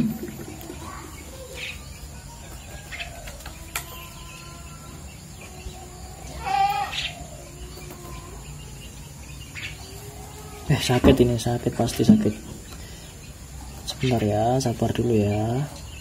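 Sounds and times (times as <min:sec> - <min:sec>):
bird chick harsh squawk: 0:06.3 - 0:07.2.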